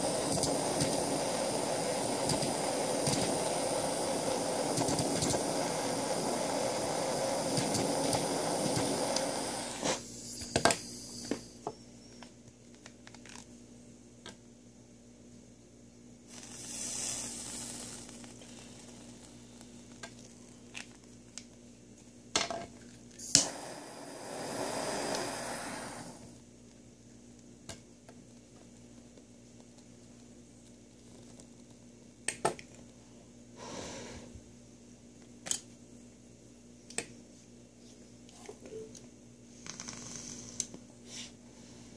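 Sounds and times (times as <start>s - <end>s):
torch flame hissing: 0.0s - 11.5s, 16.3s - 20.0s, 23.2s - 26.4s.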